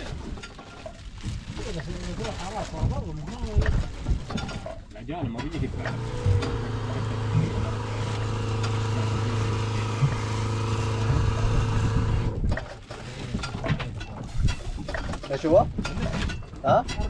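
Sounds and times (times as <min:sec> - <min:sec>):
electric water pump humming: 0:05.7 - 0:12.7.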